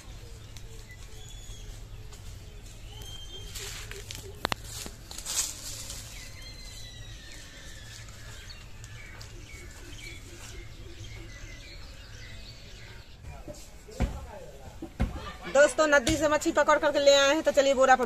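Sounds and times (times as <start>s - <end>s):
birds chirping and calling: 0.0s - 18.0s
low outdoor background: 0.0s - 18.0s.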